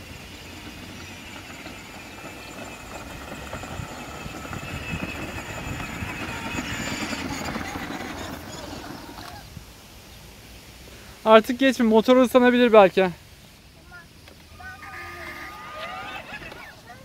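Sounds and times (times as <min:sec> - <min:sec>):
electric toy car whine: 0:00.0 - 0:09.5, 0:14.6 - 0:16.8
wheels rattling over bricks: 0:00.0 - 0:09.5, 0:14.7 - 0:17.0.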